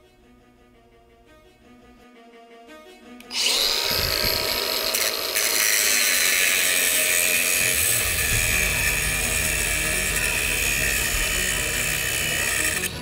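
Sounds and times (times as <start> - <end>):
angle grinder cutting metal: 3.2 - 13.0.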